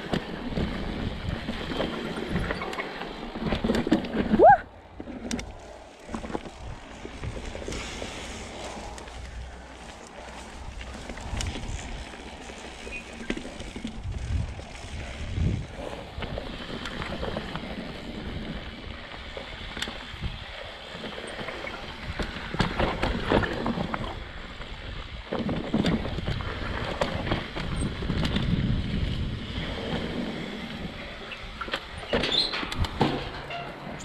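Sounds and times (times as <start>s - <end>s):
bike rattling over bumps: 0.0s - 34.0s
tyres on dirt: 0.0s - 34.0s
wind rushing over microphone: 13.6s - 19.1s, 21.9s - 34.0s.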